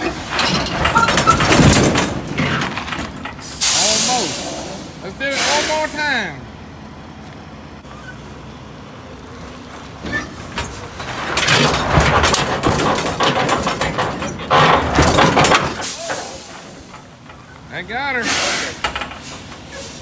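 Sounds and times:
steel knocking and creaking: 0.0s - 3.7s, 9.6s - 17.9s, 18.7s - 20.0s
diesel truck engine pulling hard: 0.0s - 20.0s.

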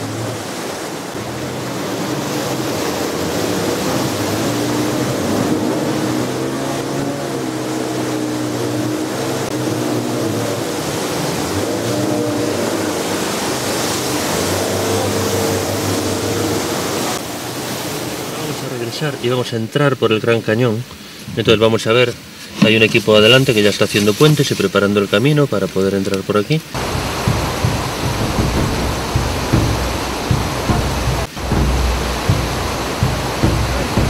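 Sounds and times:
outboard motor running hard: 0.0s - 18.7s, 26.8s - 34.0s
whitewater rushing against hull: 0.0s - 25.9s, 26.6s - 34.0s.

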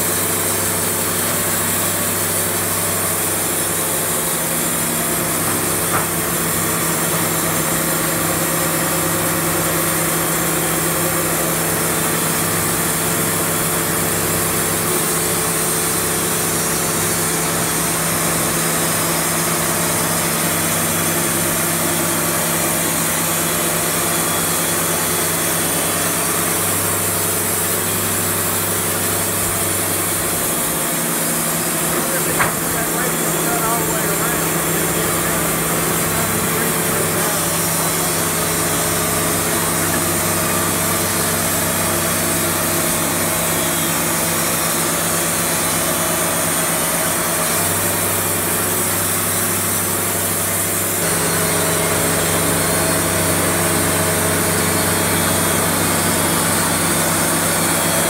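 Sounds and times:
sawmill engine running: 0.0s - 58.0s.

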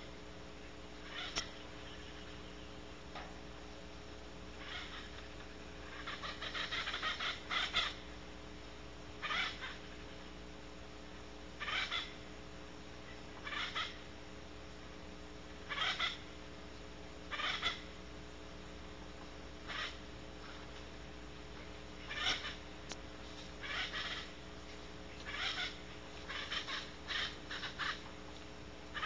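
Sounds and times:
owl hissing calls: 1.0s - 2.4s, 4.6s - 5.2s, 5.8s - 8.1s, 9.2s - 10.3s, 11.6s - 12.2s, 13.4s - 14.0s, 15.7s - 16.3s, 17.3s - 17.9s, 19.6s - 20.0s, 22.0s - 22.6s, 23.6s - 24.4s, 25.2s - 28.0s.

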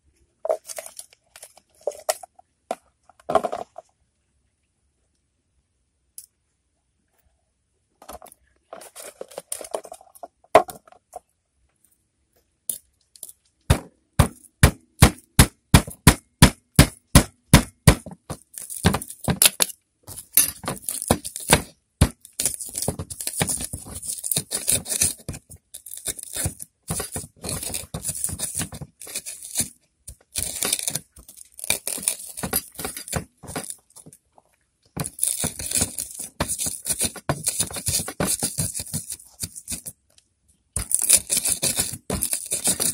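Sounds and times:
pestle pounding in mortar: 13.7s - 19.5s, 20.6s - 22.2s
pestle grinding and scraping: 16.8s - 34.2s, 35.0s - 39.9s, 40.8s - 42.9s.

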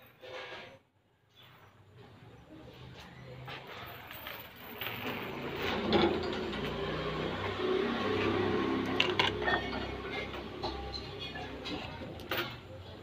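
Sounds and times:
metal chain dragging on tiles: 3.7s - 11.6s.

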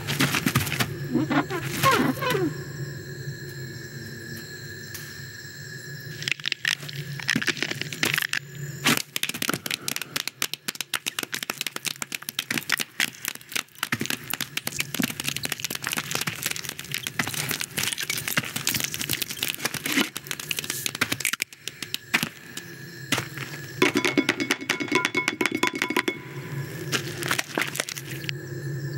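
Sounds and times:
dense crackling and clicking: 6.2s - 22.7s.

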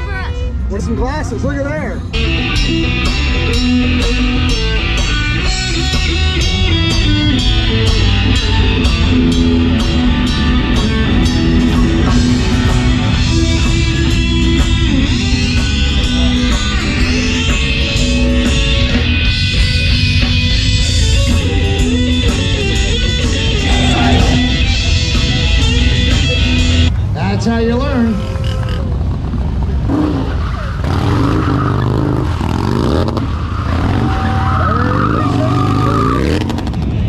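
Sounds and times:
electric guitars: 2.0s - 26.9s.

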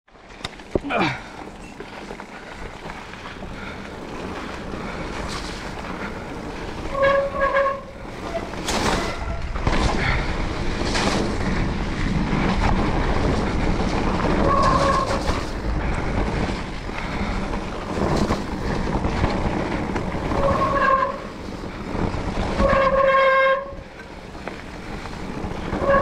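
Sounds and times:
tyre and wind noise: 0.1s - 26.0s
bike knocking over bumps: 8.4s - 22.9s.

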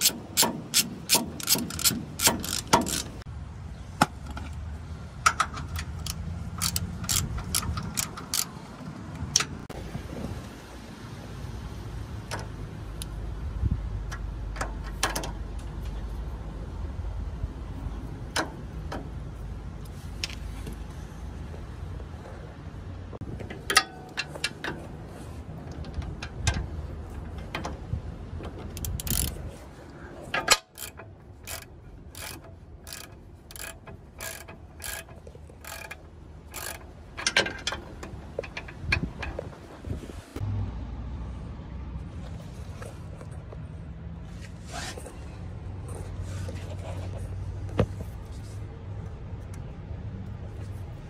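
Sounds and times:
ratchet wrench clicking: 0.0s - 3.2s, 5.2s - 8.6s, 28.8s - 29.4s, 30.4s - 39.3s.

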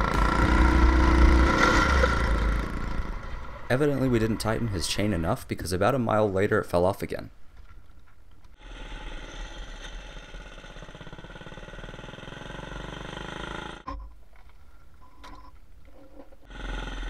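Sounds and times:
minibike engine running: 0.0s - 3.5s.

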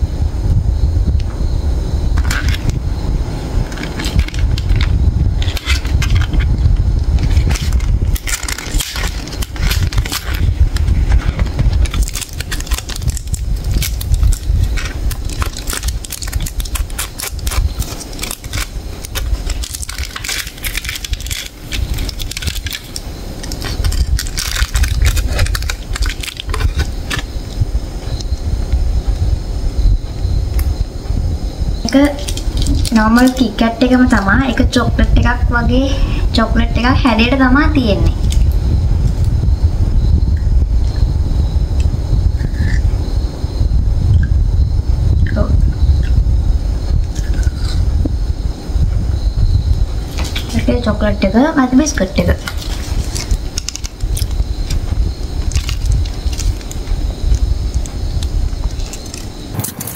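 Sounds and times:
foil crinkling: 3.6s - 27.6s, 31.9s - 33.5s, 50.0s - 51.0s, 51.9s - 59.9s
paper wrapper ripping: 3.7s - 6.5s, 7.2s - 27.3s, 50.1s - 50.6s, 52.4s - 54.8s, 55.4s - 57.0s, 58.7s - 59.9s.

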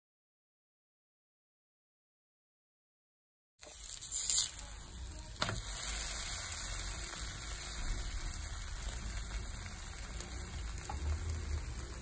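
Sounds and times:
flatbread sizzling in oil: 3.6s - 12.0s.

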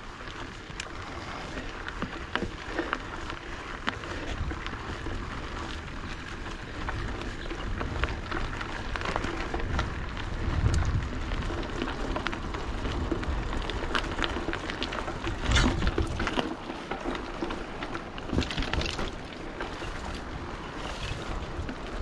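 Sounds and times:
bike rattling: 0.0s - 22.0s
tyres crackling over gravel: 0.0s - 22.0s
wind on microphone: 4.0s - 16.4s.

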